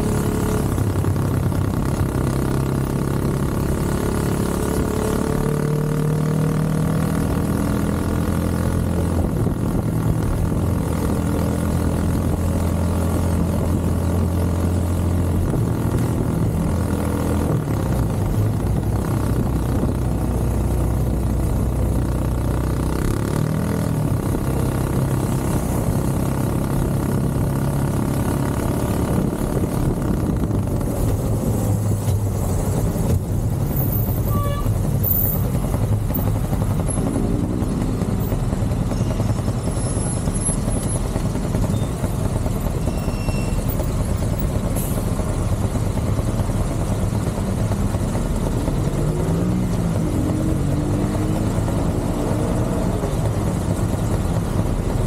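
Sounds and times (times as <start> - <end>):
small motorcycle engine running: 17.6 - 44.6.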